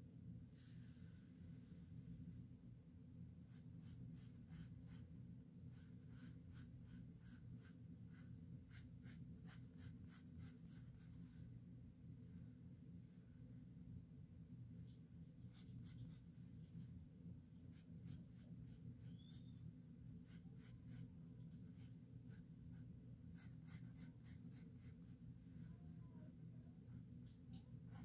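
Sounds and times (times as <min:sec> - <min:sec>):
steady low hum: 0:00.0 - 0:28.0
pencil scratching on paper: 0:03.5 - 0:05.1, 0:05.7 - 0:11.3, 0:15.4 - 0:16.8, 0:17.6 - 0:19.6, 0:20.2 - 0:25.3, 0:26.9 - 0:28.0.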